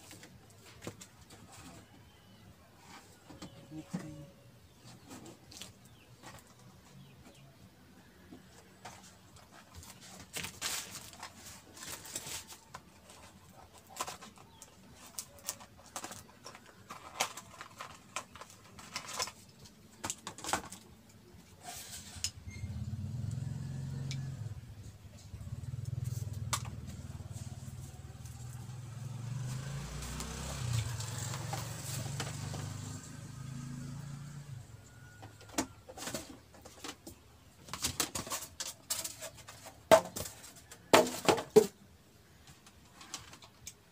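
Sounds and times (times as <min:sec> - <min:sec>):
plastic packaging rustling: 0:09.7 - 0:22.2.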